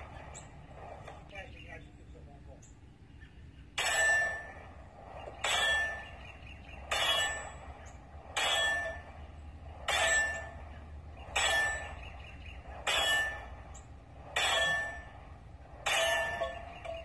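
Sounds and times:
steel target ringing ding: 0:03.8 - 0:04.6, 0:05.4 - 0:06.1, 0:06.9 - 0:07.6, 0:08.4 - 0:09.1, 0:09.9 - 0:10.6, 0:11.3 - 0:12.1, 0:12.8 - 0:13.5, 0:14.4 - 0:15.2, 0:15.8 - 0:17.0.

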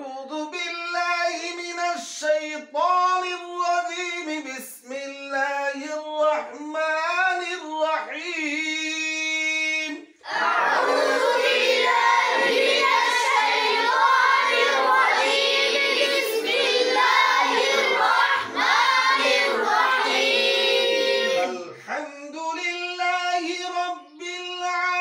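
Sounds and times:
boys chanting in unison: 0:10.2 - 0:21.9.

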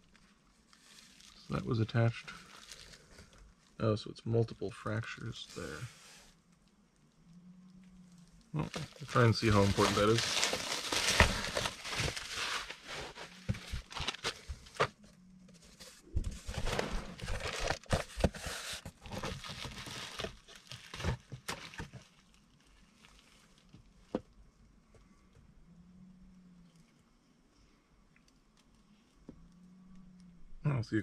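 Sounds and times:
cardboard packaging rustling: 0:00.0 - 0:03.4, 0:08.6 - 0:23.8
bubble wrap crinkling: 0:00.0 - 0:03.8, 0:08.6 - 0:15.0, 0:15.7 - 0:24.2.

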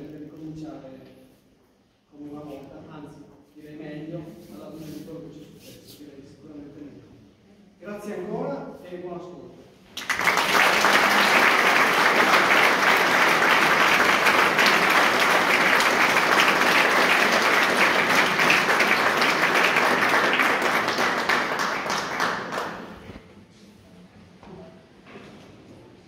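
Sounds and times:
audience applauding: 0:10.0 - 0:23.1.

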